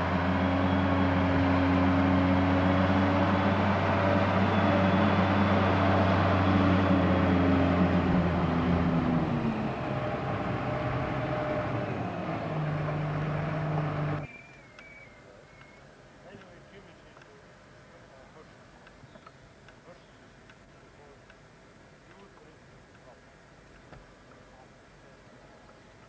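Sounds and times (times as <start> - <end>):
diesel truck engine driving away: 0.0 - 14.3.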